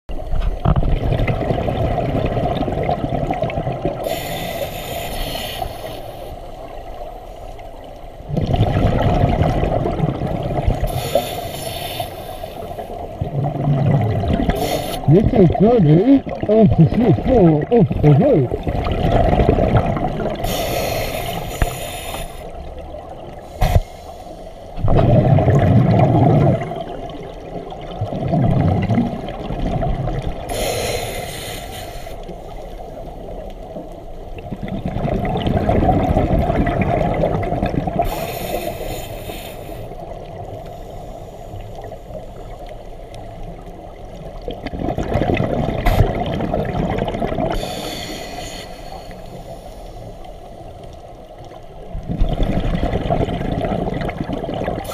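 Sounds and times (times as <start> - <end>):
bubbling exhaled air: 0.4 - 6.3, 8.2 - 22.6, 23.2 - 32.2, 34.3 - 42.6, 44.3 - 50.3, 52.0 - 54.9
hissing regulator inhale: 4.0 - 6.6, 10.8 - 13.0, 14.5 - 15.1, 20.4 - 22.6, 23.4 - 24.8, 30.5 - 33.1, 38.0 - 42.6, 47.5 - 50.8.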